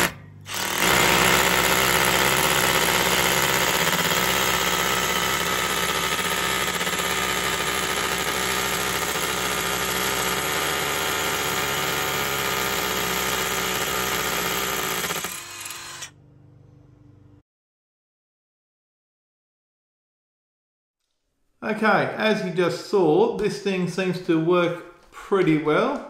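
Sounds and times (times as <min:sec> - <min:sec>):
hammer drill boring into brick: 0:00.0 - 0:16.1.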